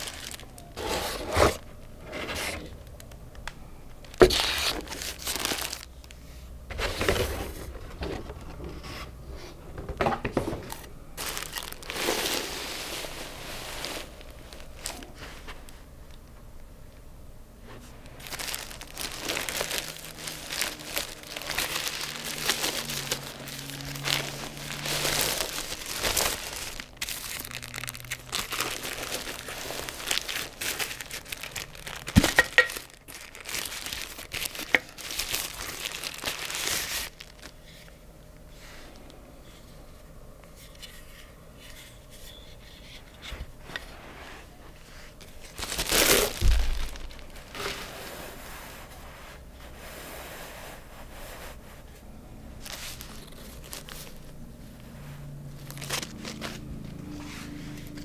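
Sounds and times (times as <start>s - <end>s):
plastic bag crinkling: 0.0s - 3.3s, 3.9s - 6.2s, 10.6s - 15.8s, 17.8s - 38.0s, 44.7s - 49.0s, 52.4s - 54.9s, 55.5s - 58.0s.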